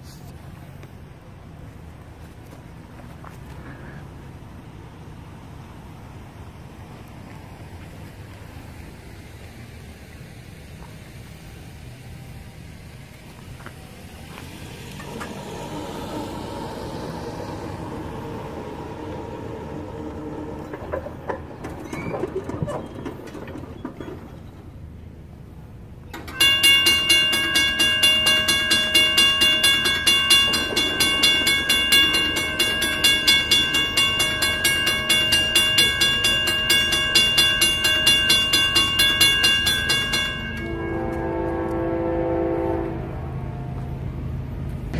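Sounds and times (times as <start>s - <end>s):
quiet rumbling noise: 0.0s - 26.3s
railroad crossing bell ringing: 13.6s - 24.3s, 26.1s - 44.1s.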